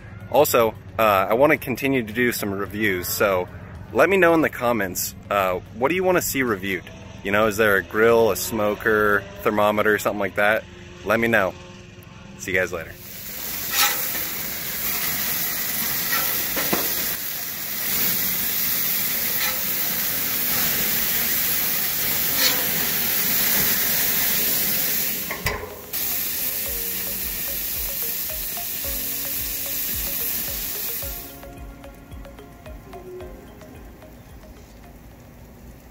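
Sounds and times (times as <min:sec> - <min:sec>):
patties sizzling on a grill: 0:12.5 - 0:31.8.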